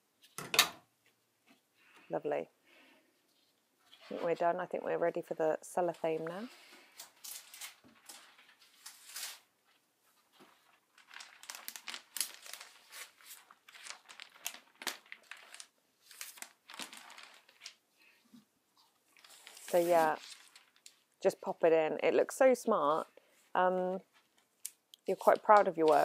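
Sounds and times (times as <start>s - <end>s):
cellophane bag crinkling: 10.4s - 17.8s, 19.2s - 21.1s.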